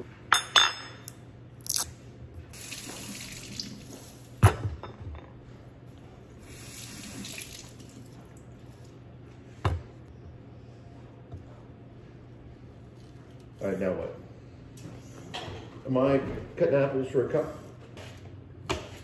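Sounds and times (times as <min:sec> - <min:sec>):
kitchen faucet running: 0:02.5 - 0:04.3, 0:06.4 - 0:08.0.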